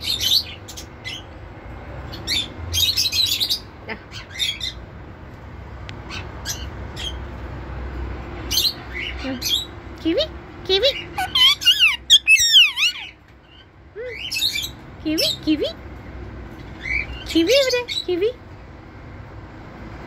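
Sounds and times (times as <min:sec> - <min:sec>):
parakeet chirping and squawking: 0:00.0 - 0:01.4, 0:02.1 - 0:04.9, 0:06.0 - 0:07.4, 0:08.4 - 0:09.9, 0:10.7 - 0:15.4, 0:16.6 - 0:18.1.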